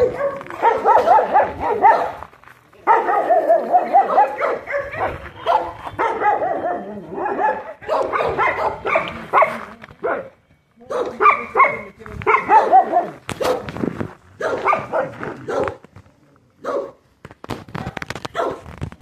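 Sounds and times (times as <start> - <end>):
dogs barking and yipping: 0.0 - 2.2, 2.8 - 10.3, 10.9 - 13.7, 14.4 - 15.8, 18.3 - 18.7.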